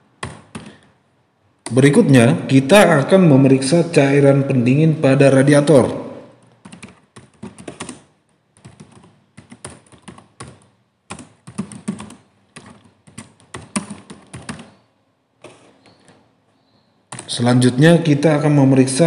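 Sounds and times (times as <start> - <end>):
typing on computer keyboard: 0.2 - 0.9, 6.4 - 14.8, 17.1 - 17.3.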